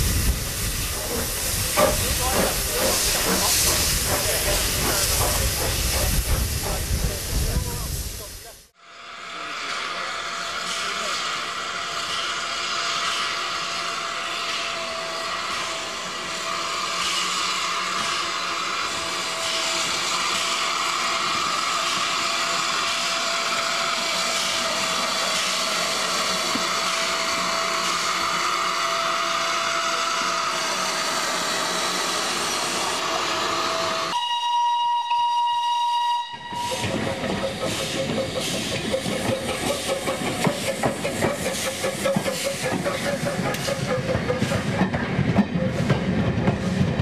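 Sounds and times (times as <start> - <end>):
quick beats of steam: 0.0 - 8.5, 36.5 - 47.0
steam locomotive hissing: 0.0 - 47.0
steam whistle blast: 33.6 - 37.0.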